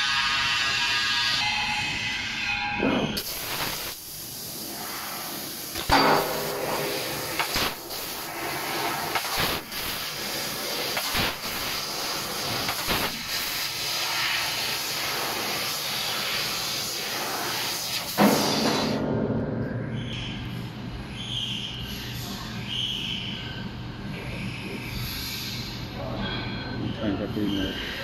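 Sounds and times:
assist gas hissing: 3.2s - 19.0s
thump: 18.2s - 19.3s
low hum: 19.0s - 21.8s.

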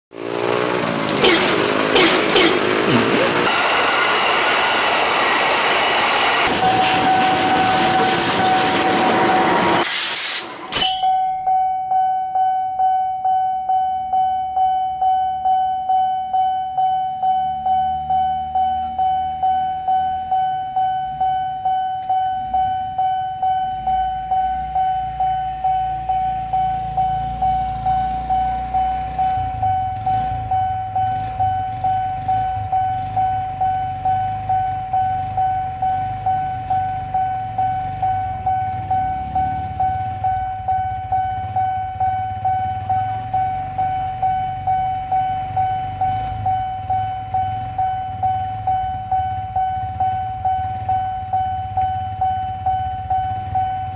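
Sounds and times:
auto-rickshaw engine idling: 0.1s - 9.1s, 17.6s - 53.9s
level crossing bell ringing: 10.8s - 53.9s.

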